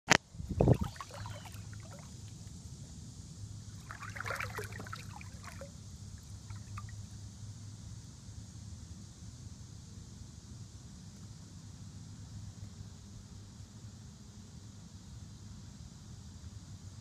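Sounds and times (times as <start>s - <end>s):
steady low hum: 0.2s - 17.0s
water splashing and trickling: 0.6s - 2.3s, 3.7s - 7.1s.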